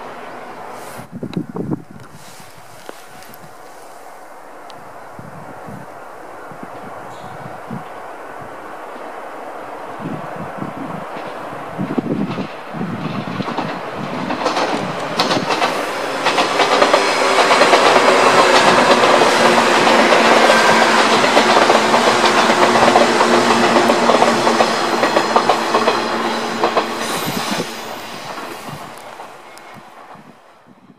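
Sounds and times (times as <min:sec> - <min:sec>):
wheels clicking over rail joints: 0:11.1 - 0:30.3
train motor hum: 0:11.4 - 0:30.3.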